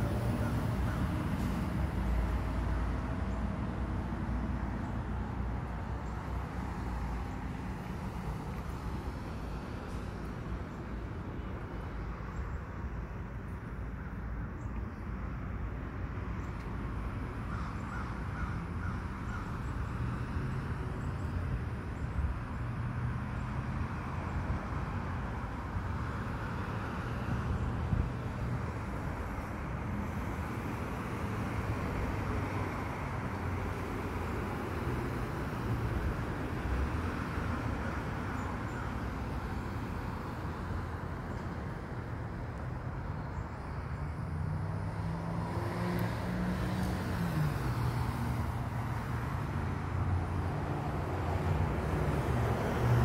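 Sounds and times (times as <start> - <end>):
truck passing: 0.0 - 12.3, 25.3 - 53.0
rumble of passing vehicles: 0.0 - 53.0.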